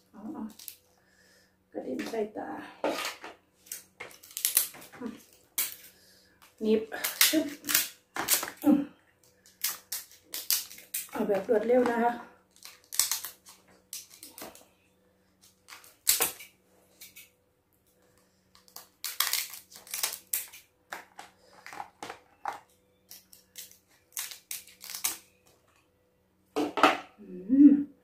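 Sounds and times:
shell cracking: 3.7 - 4.9, 7.0 - 8.6, 9.3 - 11.2, 12.5 - 14.6, 15.6 - 17.3, 18.5 - 21.2, 22.4 - 25.4
scissors snipping crab shell: 9.4 - 11.2, 12.5 - 14.5, 18.5 - 20.6, 23.1 - 25.2.

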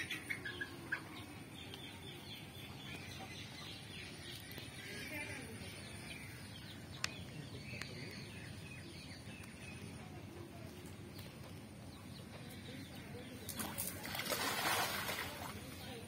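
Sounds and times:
birds chirping: 0.0 - 16.0
cast net splashing onto water: 13.5 - 15.7.

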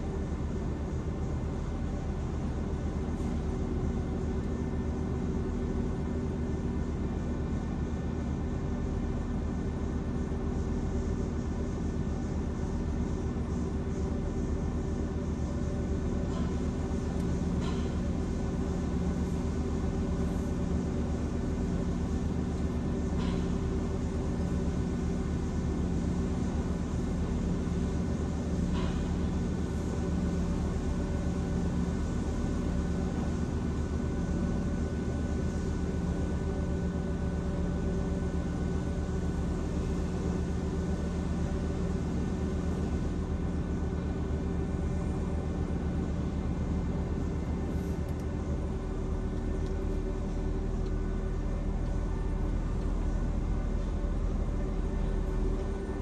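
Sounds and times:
car wash machinery humming: 0.0 - 56.0
car wash machinery rumbling: 37.4 - 56.0.

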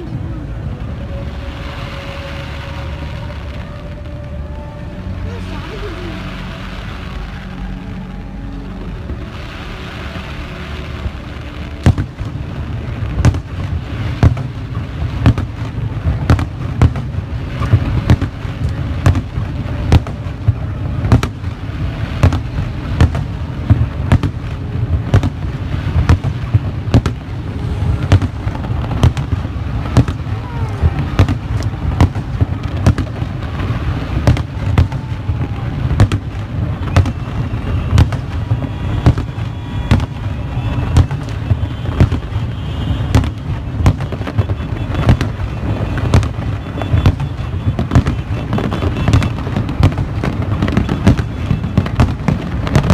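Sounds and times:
low rumble: 0.0 - 41.8
fireworks bangs and cracks: 0.0 - 52.9.

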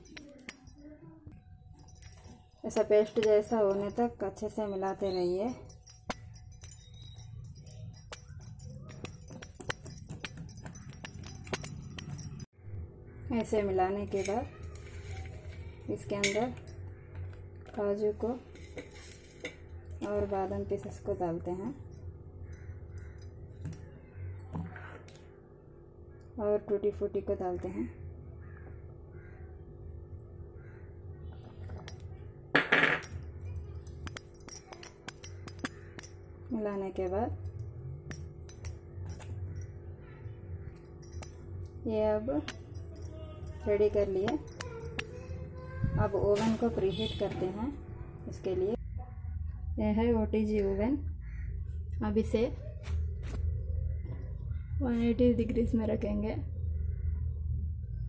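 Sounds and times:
jingling rattle: 0.0 - 1.0, 1.7 - 12.5, 33.0 - 39.8, 40.7 - 41.5, 42.4 - 46.7.

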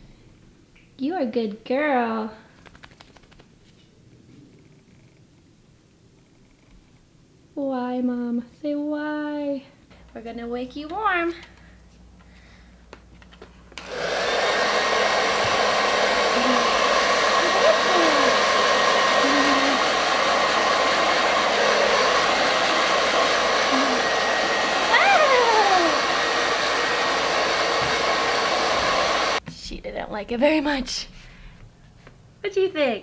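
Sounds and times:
hair dryer blowing: 13.8 - 29.4.

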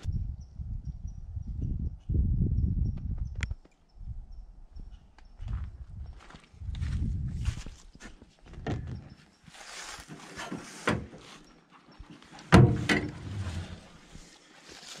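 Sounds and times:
knocks and rustling: 12.1 - 13.9.

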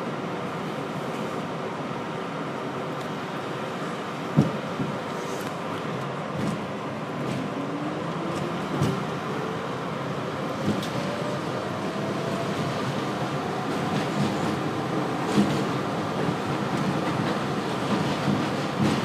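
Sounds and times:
train wheels rumbling on rails: 0.0 - 19.0
clacks over rail joints: 5.8 - 7.6, 8.3 - 9.1, 13.6 - 19.0.

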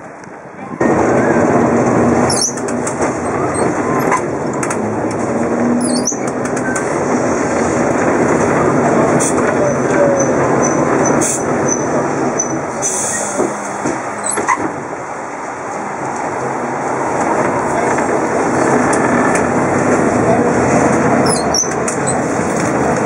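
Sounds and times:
tram clicks: 0.0 - 23.0
tram wheels rumbling and rattling: 0.0 - 23.0
thin wheel squeal: 2.3 - 2.6, 5.8 - 6.8, 21.2 - 22.2.

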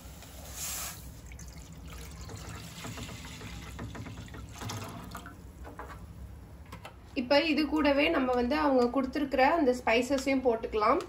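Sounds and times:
water pouring into a pan: 1.2 - 5.3.

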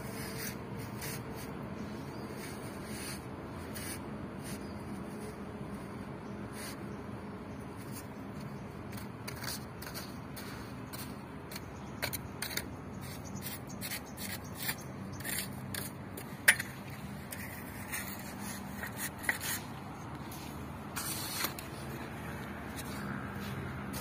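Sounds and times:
trowel scraping wet mortar: 8.9 - 21.9.

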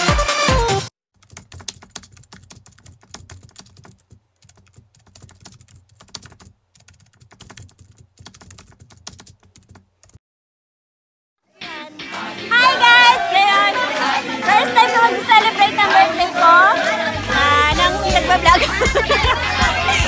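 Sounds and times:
keyboard typing clicks: 1.2 - 10.2
electronic music: 11.6 - 20.0.

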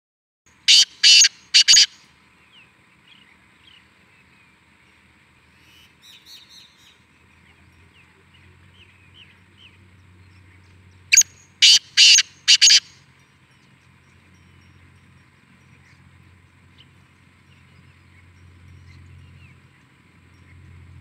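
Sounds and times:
francolin harsh calls: 0.5 - 2.0, 11.1 - 13.0
faint bird chirps: 0.7 - 4.6, 5.5 - 20.8.

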